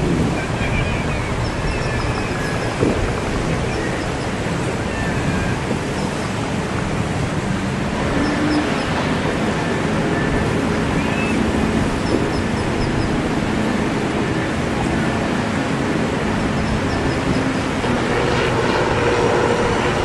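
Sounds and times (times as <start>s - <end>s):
choppy sea and breaking surf: 0.0s - 20.0s.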